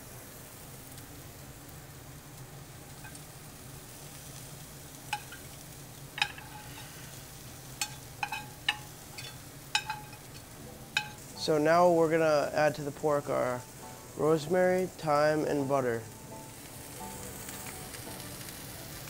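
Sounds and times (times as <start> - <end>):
meat sizzling in a pan: 0.0 - 19.0
metal spoon scraping skillet: 5.1 - 5.5, 6.2 - 11.2.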